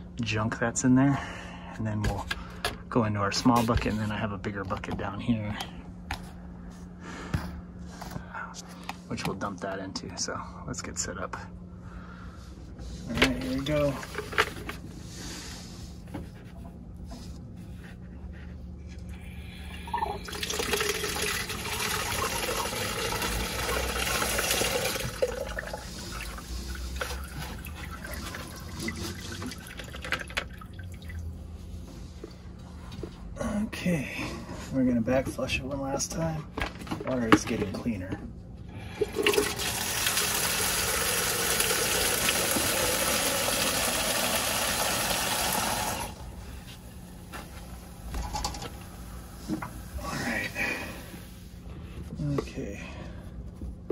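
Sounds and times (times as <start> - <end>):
water gushing into plastic bucket: 19.8 - 31.2, 39.0 - 46.2.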